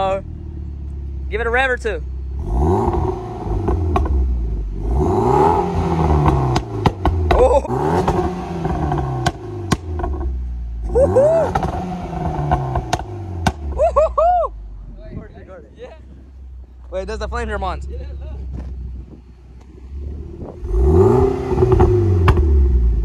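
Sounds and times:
car engine revving: 0.0 - 14.0, 16.0 - 23.0
exhaust pops: 2.8 - 4.7, 5.5 - 13.9, 18.4 - 23.0.

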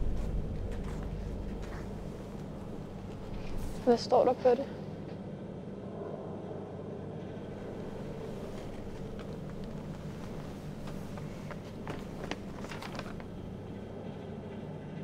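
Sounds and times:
low steady hum: 0.0 - 15.0
paper crackling: 7.5 - 14.0.

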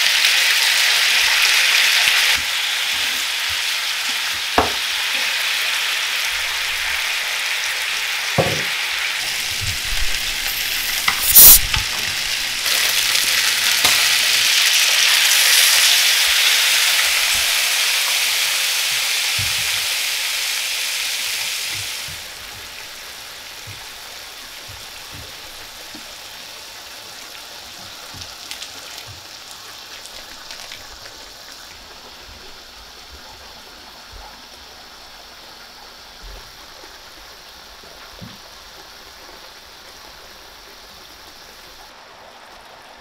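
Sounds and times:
cola sizzling in hot pan: 0.0 - 43.0
bubbling simmer with small pops: 21.7 - 26.4.

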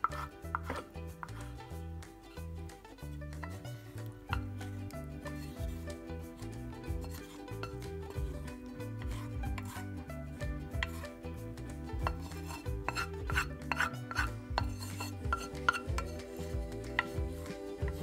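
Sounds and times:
spatula scraping porridge: 0.0 - 1.7, 3.4 - 18.0
soft background music: 0.0 - 18.0
spatula knocking against pan: 11.9 - 16.2.

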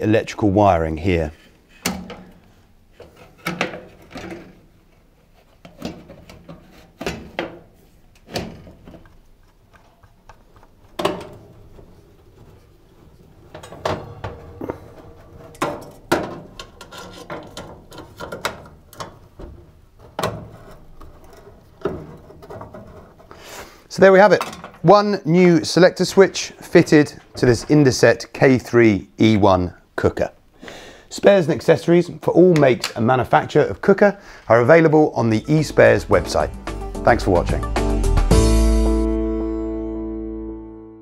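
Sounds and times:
metal panel knocking and rubbing: 13.5 - 23.2.

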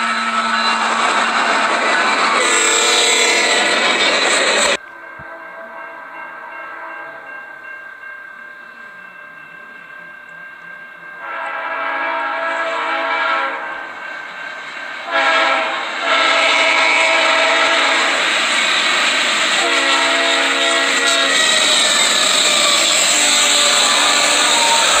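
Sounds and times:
locomotive air horn blasts: 0.0 - 1.0, 2.4 - 3.8, 11.2 - 13.9, 15.0 - 18.3, 19.5 - 25.0
train rumble and rush: 0.0 - 25.0.

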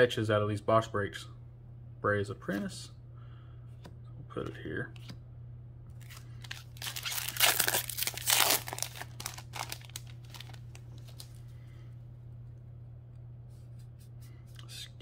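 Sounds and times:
foil wrapper crinkling and tearing: 6.0 - 11.4.

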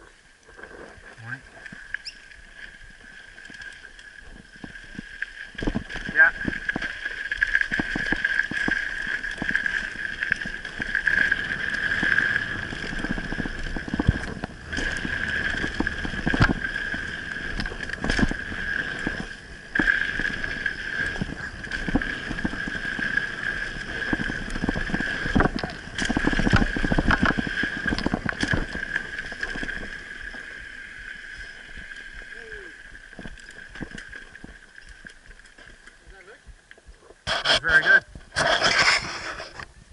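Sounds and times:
tyre rumble: 7.7 - 30.1
wind on microphone: 7.7 - 30.2
bike hub freewheeling buzz: 7.8 - 30.5.

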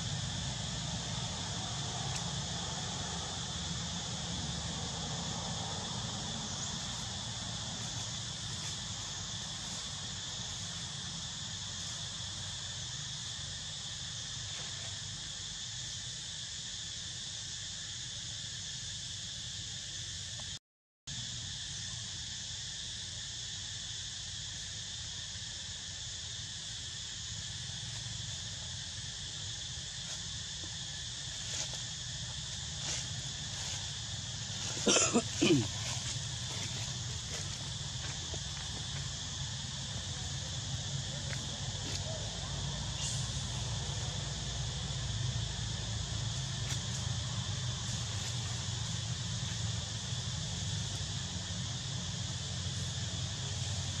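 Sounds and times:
forest insects droning: 0.0 - 54.0.

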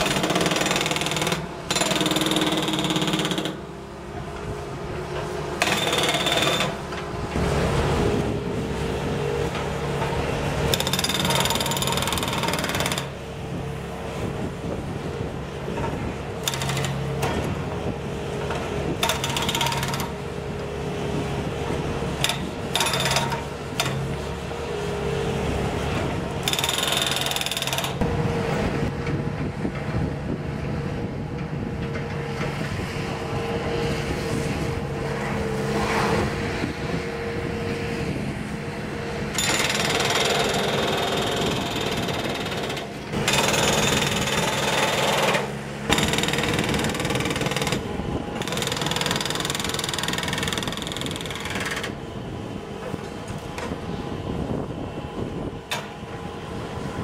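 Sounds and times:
hydraulic breaker hammering concrete: 0.0 - 3.6, 5.6 - 6.9, 10.7 - 13.2, 15.8 - 17.5, 18.9 - 20.2, 22.2 - 24.0, 26.1 - 28.1, 39.4 - 52.0
diesel engine running: 0.0 - 57.0.

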